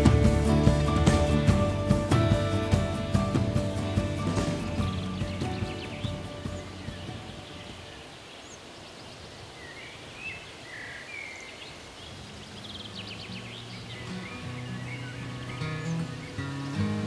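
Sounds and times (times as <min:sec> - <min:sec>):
soft music: 0:00.0 - 0:08.0, 0:13.0 - 0:17.0
bird trill: 0:00.0 - 0:08.7, 0:12.3 - 0:17.0
faint background hiss: 0:00.0 - 0:17.0
small birds chirping: 0:00.0 - 0:17.0.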